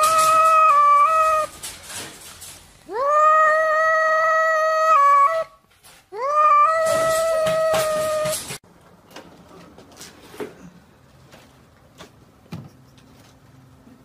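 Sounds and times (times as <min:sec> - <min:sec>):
cat yowling: 0:00.0 - 0:01.5, 0:02.9 - 0:05.6, 0:06.2 - 0:08.6.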